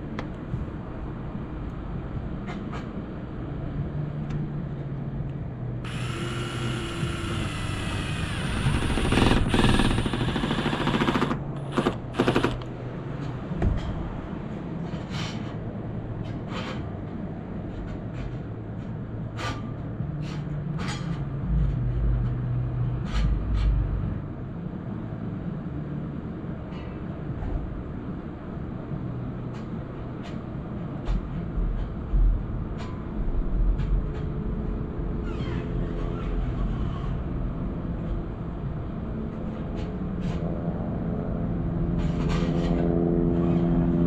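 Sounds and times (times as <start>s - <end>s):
steady low hum: 0.0s - 44.0s
impact driver whining and hammering: 5.8s - 12.7s.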